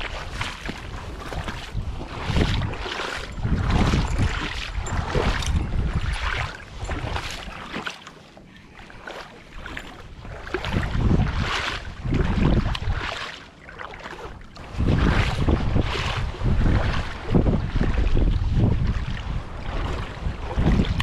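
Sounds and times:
wind buffeting microphone: 0.0s - 7.6s, 9.5s - 13.2s, 14.1s - 21.0s.

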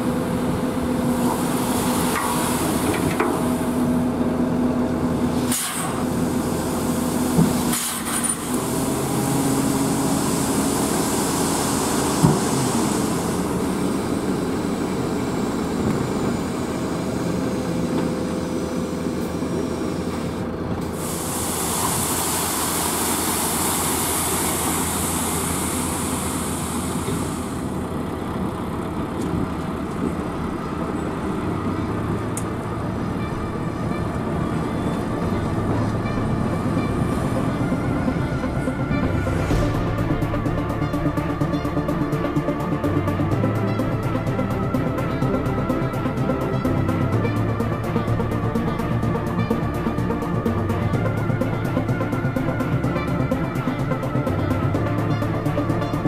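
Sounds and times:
diesel truck engine running: 0.0s - 56.0s
steady hiss: 21.0s - 27.6s.

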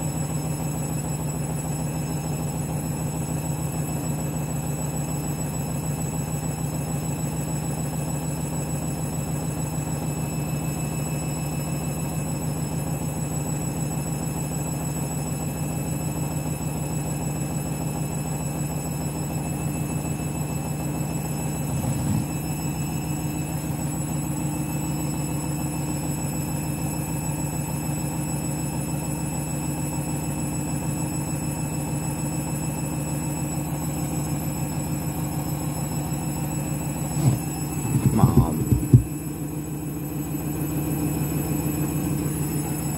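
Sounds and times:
washing machine spinning: 21.2s - 24.4s, 37.1s - 39.6s.

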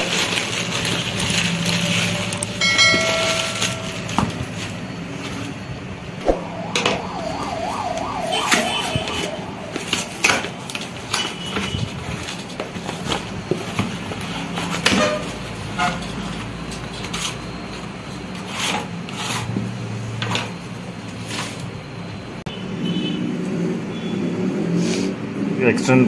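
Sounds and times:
paper packaging tearing: 0.0s - 2.6s.

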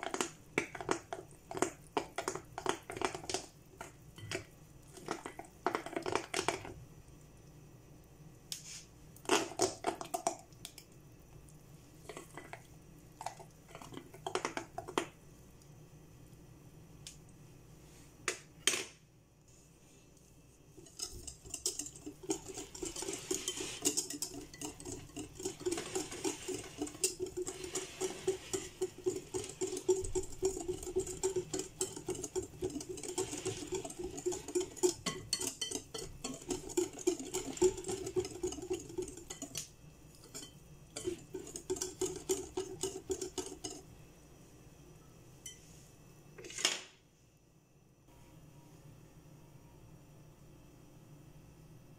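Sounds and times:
whisk clicking against glass bowl: 20.8s - 43.8s.

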